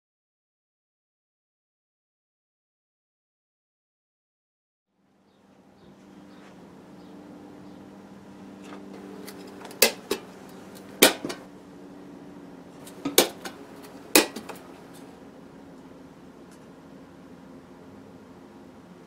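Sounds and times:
low steady hum: 4.9 - 19.0
tin snips cutting metal can: 9.3 - 10.3, 12.9 - 14.6.

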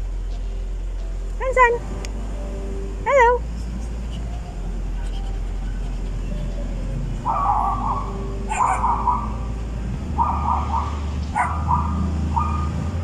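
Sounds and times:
low car cabin hum: 0.0 - 13.0
puppy yapping: 7.2 - 9.4, 10.2 - 12.8.

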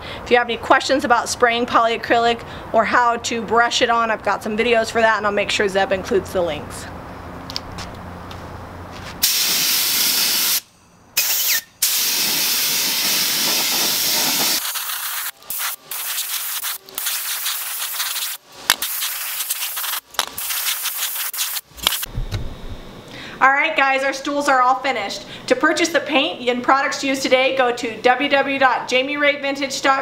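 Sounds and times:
spray gun hissing: 9.2 - 10.6, 11.2 - 22.1.

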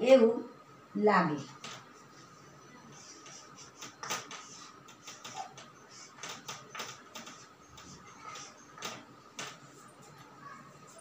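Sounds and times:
chalk writing on blackboard: 2.9 - 10.0.

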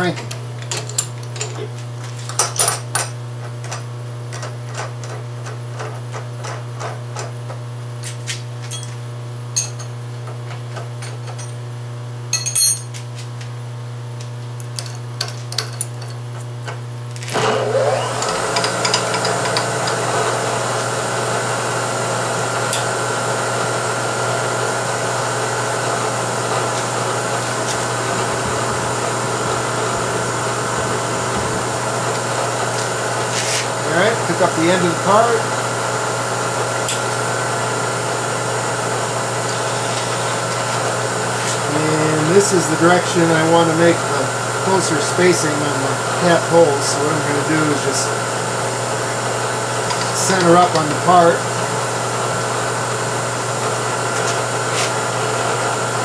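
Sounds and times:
milling machine motor whining: 17.1 - 56.0
low hum: 24.5 - 33.8.

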